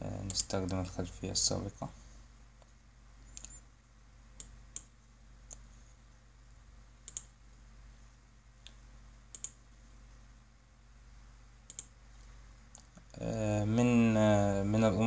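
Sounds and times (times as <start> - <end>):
faint low hum: 0.0 - 15.0
computer mouse clicking: 0.3 - 0.5, 3.3 - 3.6, 4.4 - 5.7, 7.0 - 7.4, 8.6 - 9.6, 11.7 - 12.0.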